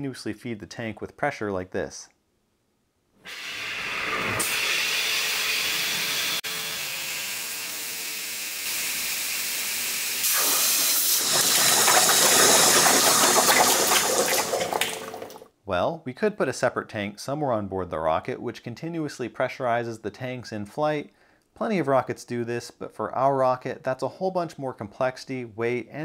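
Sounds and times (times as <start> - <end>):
compressed air hissing: 3.3 - 6.4, 10.1 - 12.8
water splashing into plastic bucket: 10.4 - 15.5.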